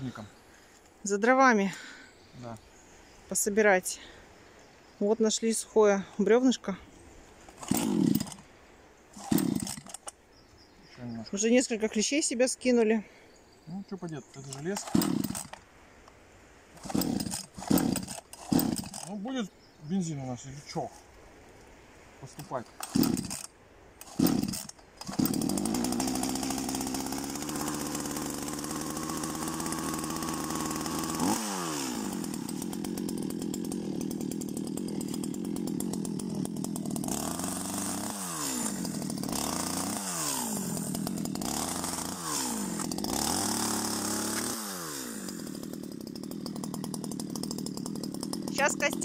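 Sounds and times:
chainsaw cutting log: 7.5s - 8.5s, 9.2s - 10.2s, 14.4s - 15.7s, 16.8s - 19.2s, 22.3s - 49.0s.

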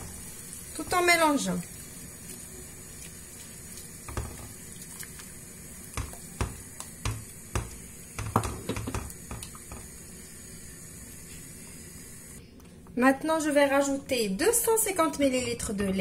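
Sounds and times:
spatula knocking and scraping pot: 4.1s - 4.6s, 5.9s - 9.9s.

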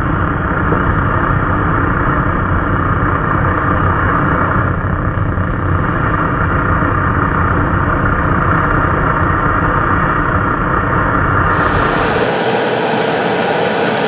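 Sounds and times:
welding arc hissing and buzzing: 11.4s - 14.0s.

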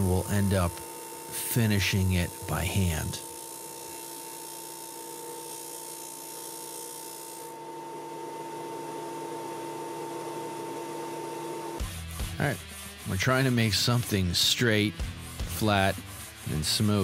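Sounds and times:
high grinding hiss: 0.0s - 7.6s
disc sander motor whine: 0.0s - 12.0s.

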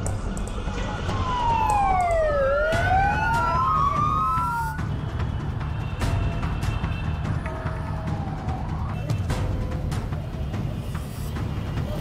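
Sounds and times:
street traffic: 0.0s - 12.0s
ambulance sirens wailing: 0.8s - 5.1s, 7.3s - 9.4s.

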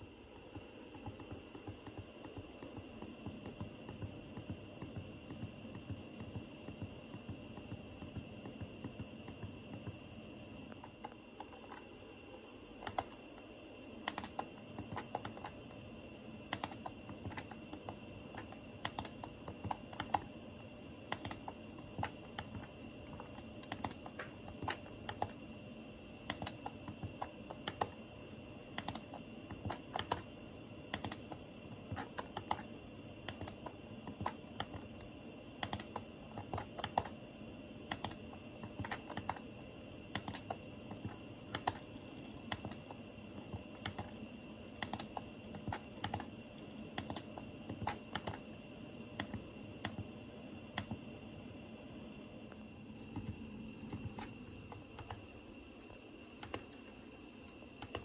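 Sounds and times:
faint high whine: 0.0s - 58.0s.

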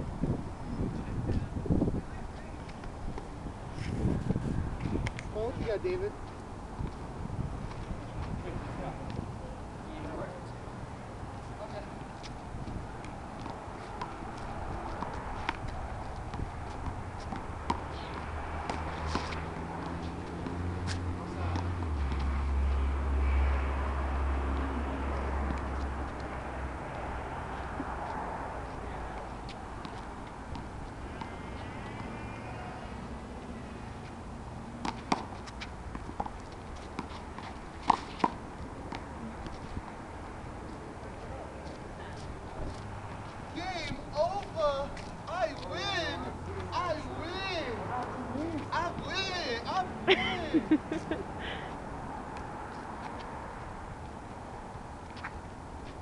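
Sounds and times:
sneaker footsteps and scuffs: 11.3s - 46.7s
footsteps scuffing on court: 11.4s - 22.9s.

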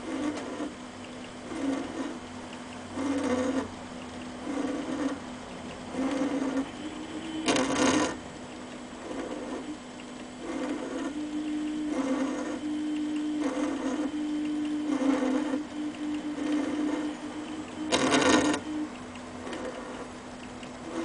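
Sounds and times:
lathe whirring bursts: 0.0s - 21.0s
motor hum: 0.0s - 21.0s.

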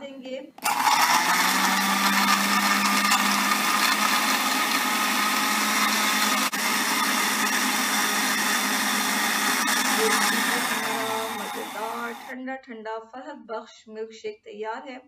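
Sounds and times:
blender whirring: 0.6s - 12.3s.

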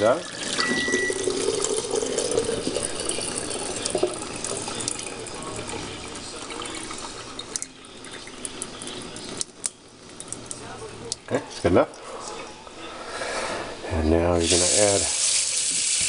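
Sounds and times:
water pouring into sink drain: 0.0s - 11.2s, 14.4s - 16.0s.

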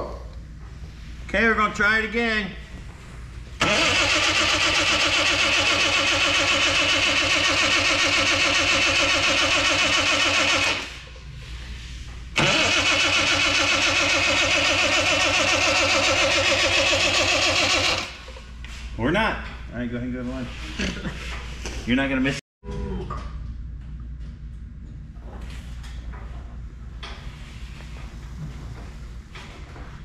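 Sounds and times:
starter motor cranking engine: 3.6s - 11.0s, 12.4s - 18.2s.

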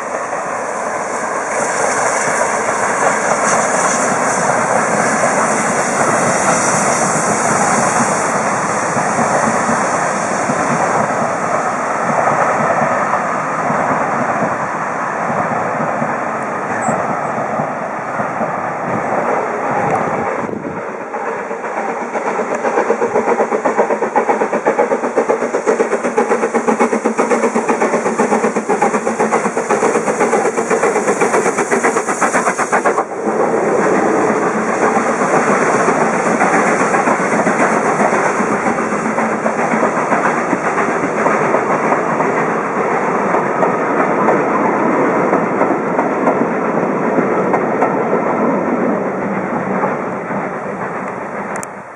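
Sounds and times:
steam locomotive exhaust beating: 0.0s - 51.9s
wheels clacking over rail joints: 21.6s - 51.8s.

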